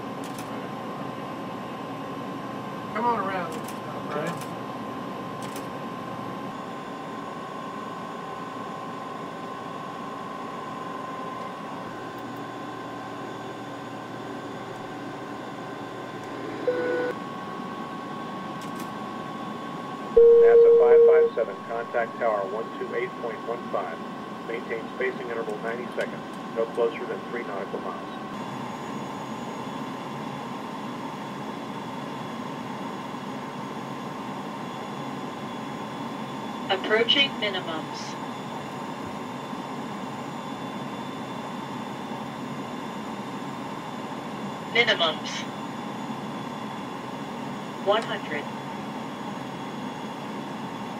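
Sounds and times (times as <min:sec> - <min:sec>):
aircraft cockpit hum: 0:00.0 - 0:50.9
short steady tone: 0:20.2 - 0:21.4.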